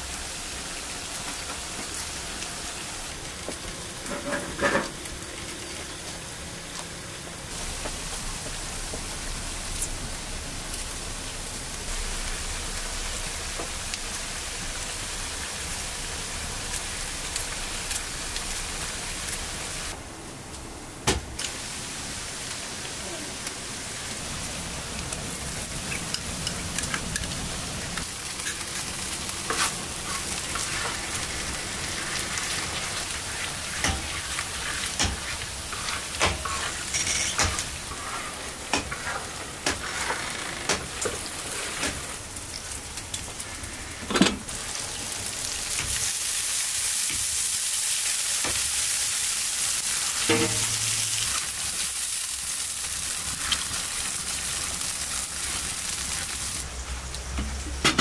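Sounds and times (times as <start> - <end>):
onions and potatoes sizzling in oil: 0.0 - 20.0, 21.4 - 58.0
utensil scraping a pan: 4.0 - 5.0, 32.1 - 40.4.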